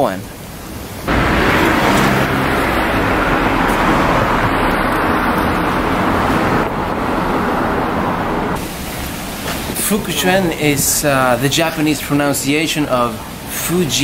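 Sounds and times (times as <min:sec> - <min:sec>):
road traffic rushing: 0:00.7 - 0:10.8.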